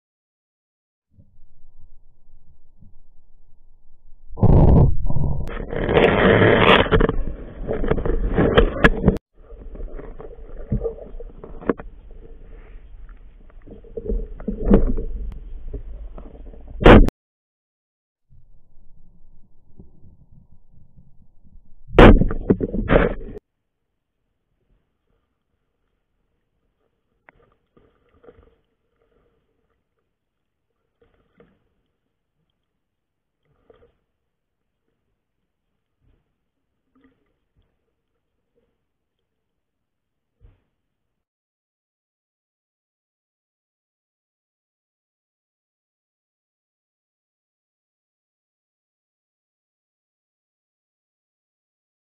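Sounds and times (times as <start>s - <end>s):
water movement underwater: 1.2s - 17.1s, 18.3s - 23.4s, 24.3s - 41.0s
water rushing underwater: 4.4s - 16.8s.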